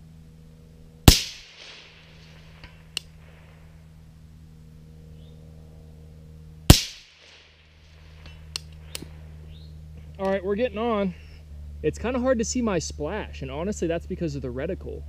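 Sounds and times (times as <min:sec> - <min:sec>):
suppressed rifle shot: 0:01.0 - 0:03.6, 0:06.7 - 0:09.2.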